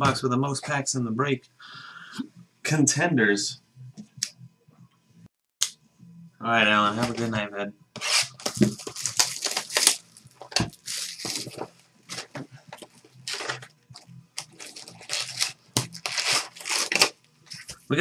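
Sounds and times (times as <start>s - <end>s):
cardboard and plastic rustling: 8.0s - 17.9s.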